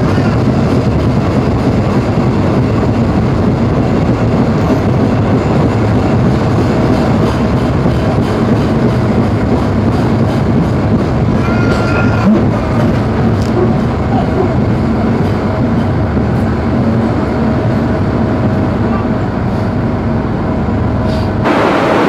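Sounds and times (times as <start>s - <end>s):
train rumbling on rails: 0.0s - 22.0s.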